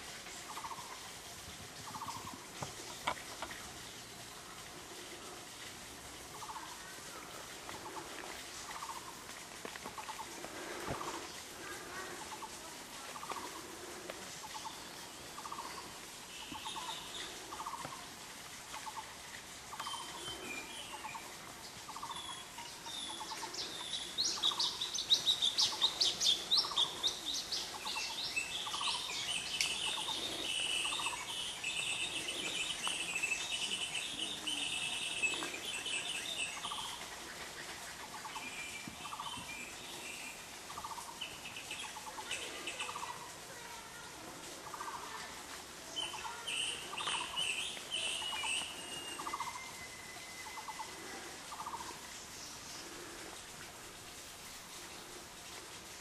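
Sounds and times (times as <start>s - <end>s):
bird pulsed call: 14.4s - 18.1s, 19.7s - 43.2s, 45.9s - 52.8s
high rapid bird chirping: 21.9s - 37.5s.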